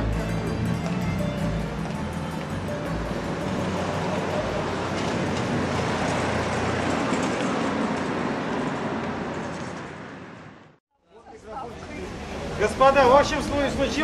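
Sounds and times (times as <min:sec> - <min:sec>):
passing vehicles rushing: 0:00.0 - 0:10.8.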